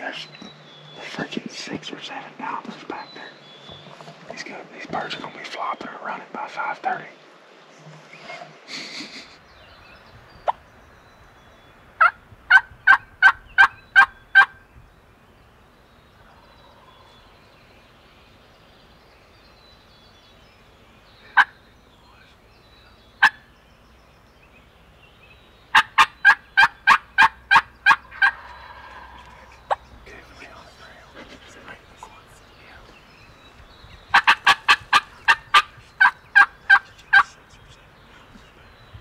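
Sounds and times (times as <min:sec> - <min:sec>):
turkey yelps: 0:12.0 - 0:14.6, 0:25.7 - 0:29.8, 0:34.1 - 0:37.3.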